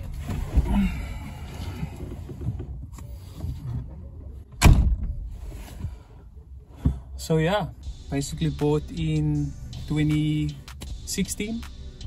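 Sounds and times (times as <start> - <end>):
rustling and shifting: 0.0 - 8.0
car door slamming: 4.5 - 5.3.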